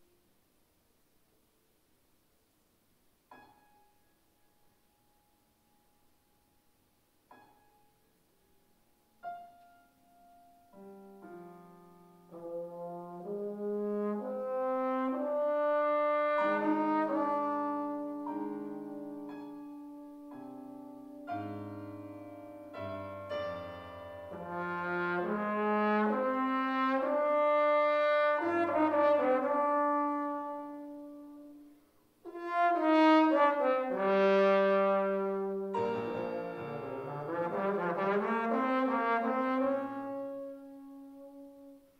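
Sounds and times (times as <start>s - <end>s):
piano accompaniment: 3.3s - 6.6s, 7.2s - 41.9s
solo trombone melody: 12.1s - 41.9s.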